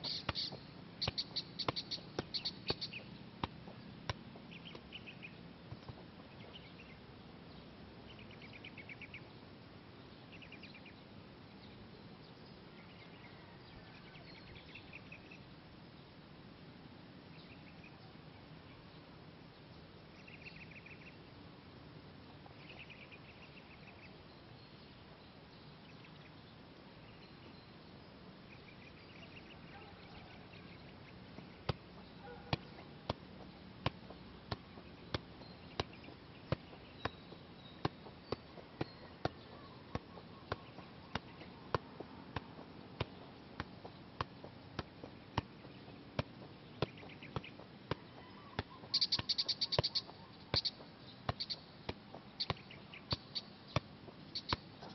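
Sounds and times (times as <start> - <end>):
soccer ball taps on feet: 0.0 - 4.9, 5.7 - 6.2, 31.4 - 54.9
faint chirping: 0.0 - 16.0, 22.4 - 54.9.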